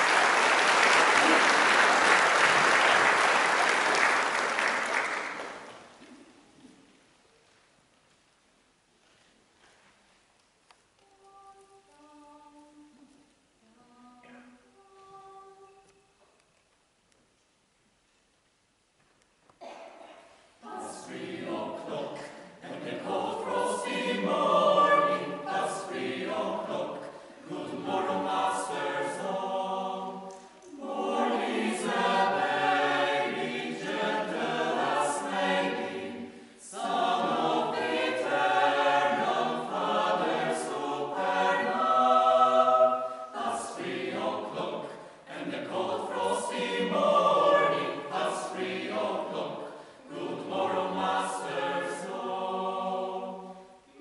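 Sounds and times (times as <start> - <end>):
mixed choir singing a cappella: 19.6 - 54.0.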